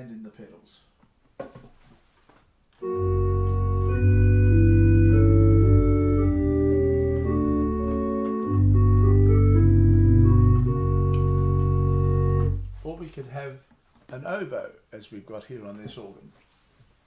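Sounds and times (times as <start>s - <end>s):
organ melody on reed stop: 2.8s - 13.0s
deep pedal bass: 2.9s - 13.0s.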